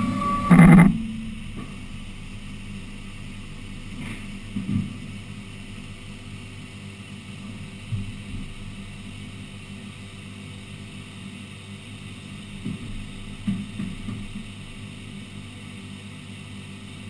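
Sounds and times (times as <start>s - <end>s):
steady high tone: 0.0s - 1.1s
loud burst of noise: 0.0s - 1.5s
machine humming: 0.0s - 4.7s.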